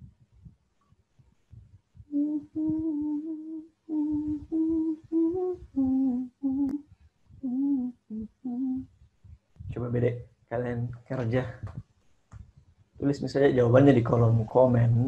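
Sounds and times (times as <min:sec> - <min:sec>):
man humming a tune: 0:02.0 - 0:08.9.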